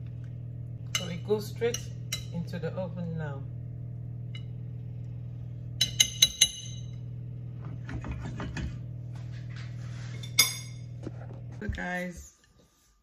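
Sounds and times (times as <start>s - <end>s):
steady low hum: 0.0s - 13.0s
metal spoon clinking on glass dish: 0.9s - 2.4s, 5.8s - 7.0s.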